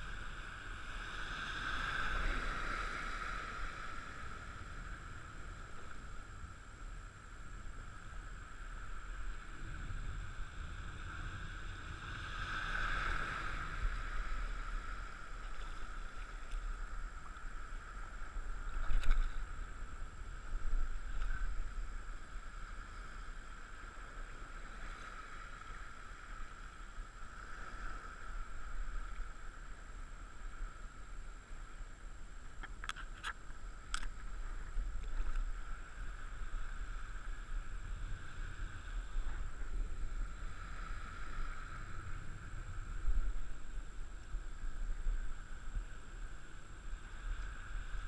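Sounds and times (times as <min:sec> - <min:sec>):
low wind rumble: 0:00.0 - 0:48.0
water lapping and sloshing: 0:11.4 - 0:30.6.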